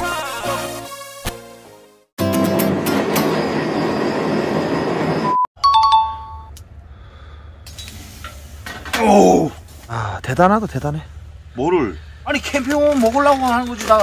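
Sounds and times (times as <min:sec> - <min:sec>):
subway train rushing: 0:02.2 - 0:05.4
ding-dong station chime: 0:05.6 - 0:06.5.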